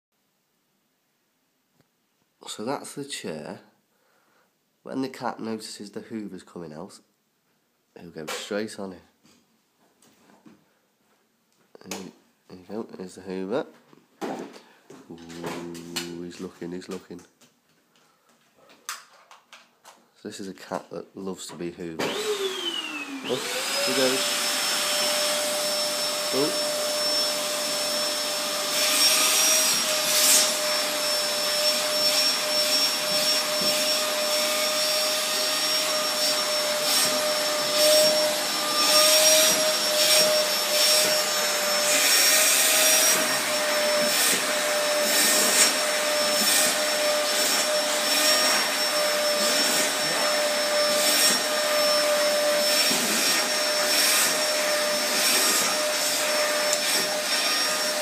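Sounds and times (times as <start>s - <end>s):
vacuum cleaner running: 22.0s - 58.0s.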